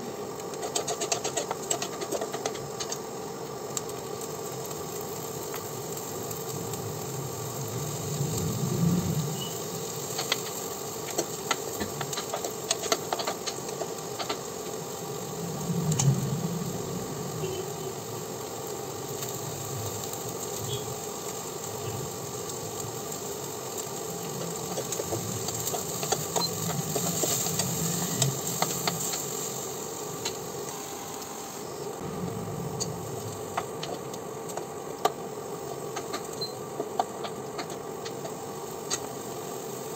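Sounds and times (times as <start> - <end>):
hiss: 0.0 - 39.9
steady mechanical hum: 0.0 - 39.9
utensils tapping frying pan: 0.4 - 3.0, 9.4 - 14.8, 23.8 - 29.4, 35.9 - 39.1.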